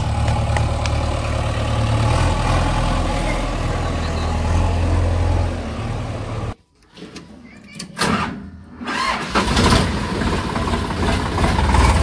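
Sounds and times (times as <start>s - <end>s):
diesel engine running: 0.0s - 6.6s, 9.3s - 12.0s.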